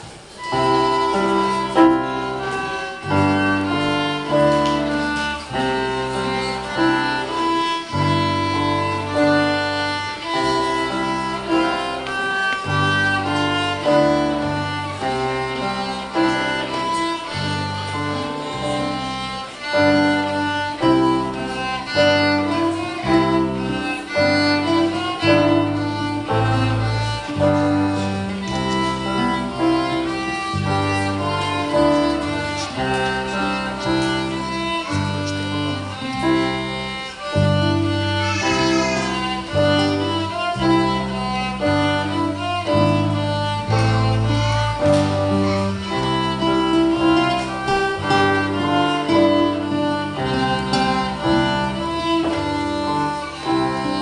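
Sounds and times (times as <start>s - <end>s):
piano: 0.0s - 54.0s
solo violin melody: 0.0s - 54.0s.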